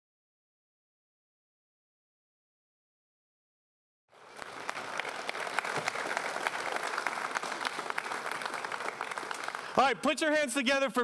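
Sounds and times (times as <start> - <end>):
audience applause: 4.1 - 10.0.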